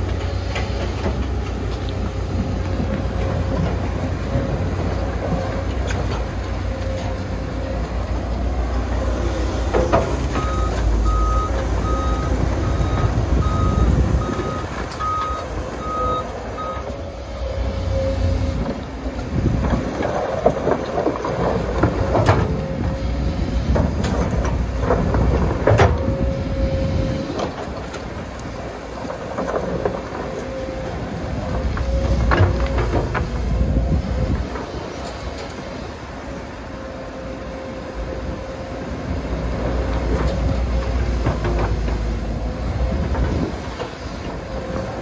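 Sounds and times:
excavator diesel engine: 0:00.0 - 0:45.0
travel alarm beeping: 0:10.4 - 0:17.0.

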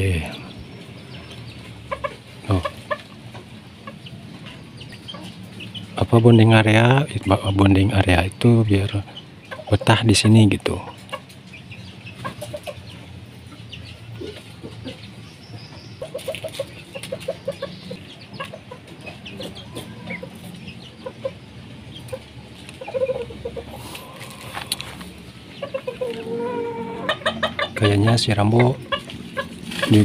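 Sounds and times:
chickens clucking: 0:00.0 - 0:30.0
drawn-out chicken call: 0:16.0 - 0:21.4, 0:22.0 - 0:30.0.

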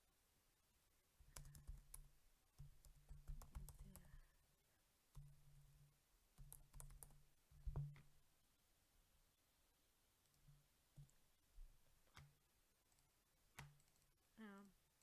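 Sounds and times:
computer keyboard typing: 0:01.2 - 0:04.2, 0:06.4 - 0:08.0.

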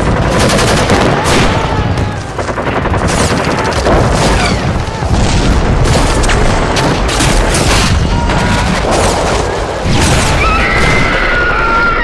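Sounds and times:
gunfire: 0:00.0 - 0:11.1
explosion booms: 0:04.4 - 0:09.1.

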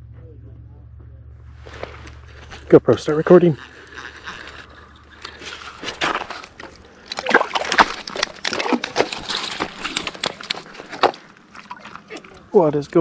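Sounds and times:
fish flopping on wet ice: 0:03.4 - 0:12.5.

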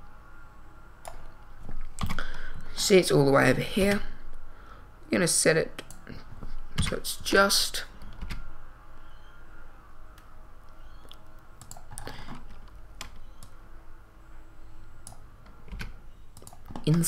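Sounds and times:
low steady hum: 0:00.0 - 0:17.0
keyboard and mouse clicks: 0:01.0 - 0:02.2, 0:05.8 - 0:06.0, 0:10.1 - 0:13.6, 0:15.0 - 0:17.0.

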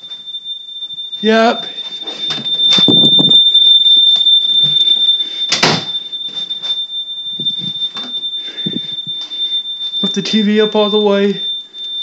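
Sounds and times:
smoke alarm tone: 0:00.0 - 0:12.0
noise bursts: 0:07.3 - 0:09.3.

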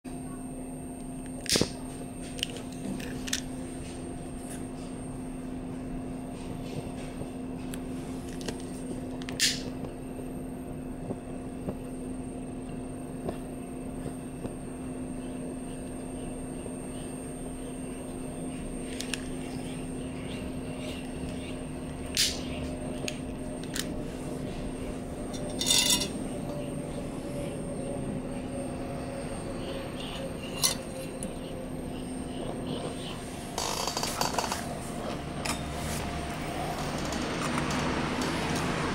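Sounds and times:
steady low hum: 0:00.0 - 0:38.9.

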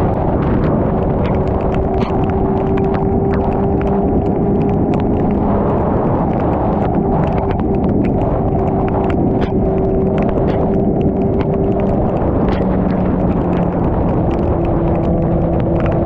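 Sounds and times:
motorcycle engine hum: 0:00.0 - 0:16.0
raindrops ticking on camera: 0:00.0 - 0:16.0
wind buffeting microphone: 0:00.0 - 0:16.0.

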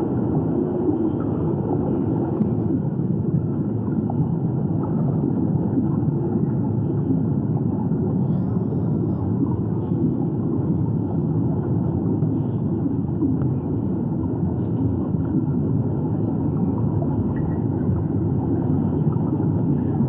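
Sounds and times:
underwater rumble: 0:00.0 - 0:20.0.

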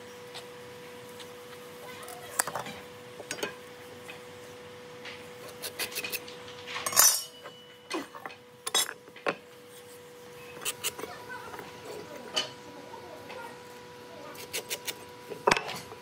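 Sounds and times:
pencil scraping: 0:10.6 - 0:11.0.

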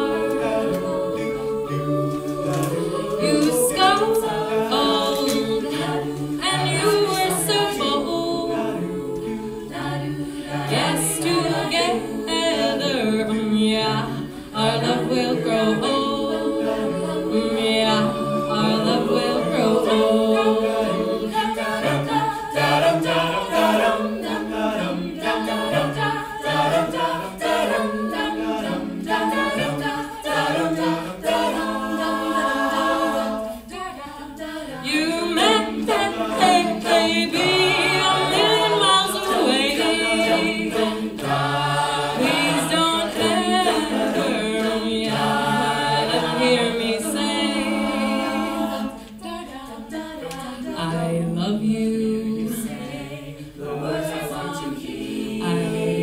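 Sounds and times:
a cappella group singing in harmony: 0:00.0 - 0:56.0.

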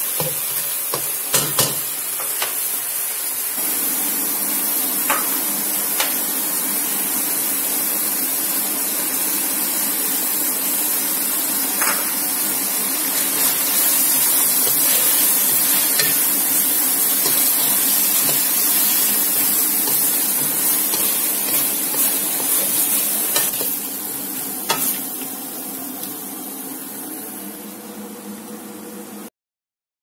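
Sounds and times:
food sizzling in a pan: 0:00.0 - 0:28.8
spatula stirring: 0:13.2 - 0:23.8.

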